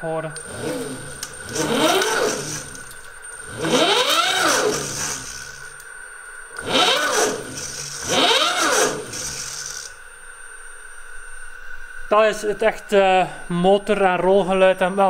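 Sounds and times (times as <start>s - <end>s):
electric motor whining: 0.0s - 5.9s, 6.5s - 10.1s
steady high whine: 0.0s - 15.0s.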